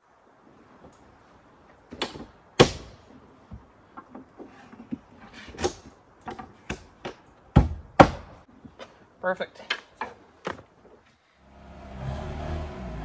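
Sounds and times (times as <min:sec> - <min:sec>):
rooftop tent folding with knocks: 0:01.7 - 0:09.0, 0:09.9 - 0:11.0.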